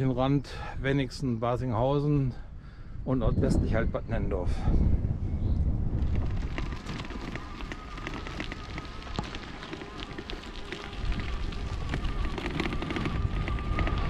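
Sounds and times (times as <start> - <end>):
wind on microphone: 2.2 - 14.0
bicycle tyres on gravel: 5.9 - 14.0.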